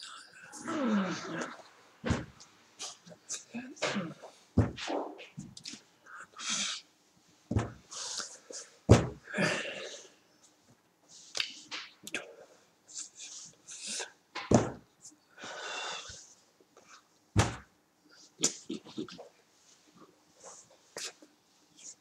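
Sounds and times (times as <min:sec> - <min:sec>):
short thumps: 0:04.6 - 0:05.5, 0:07.5 - 0:07.8, 0:08.9 - 0:09.2, 0:17.4 - 0:17.7.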